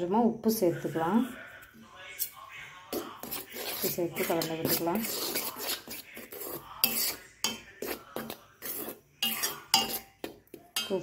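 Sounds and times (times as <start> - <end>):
spoon scraping metal bowl: 0.7 - 11.0.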